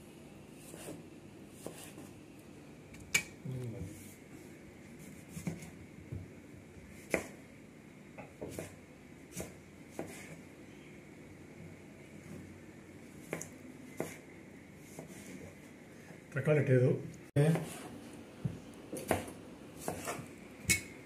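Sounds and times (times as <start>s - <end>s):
knife cutting tomatoes: 0.6s - 2.2s, 18.9s - 20.3s.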